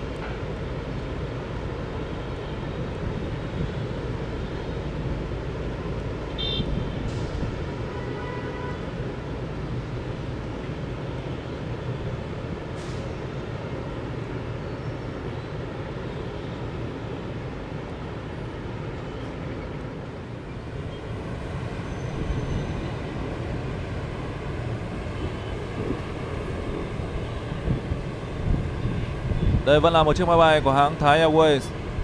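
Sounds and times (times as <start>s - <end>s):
distant engines rumbling: 0.0s - 32.0s.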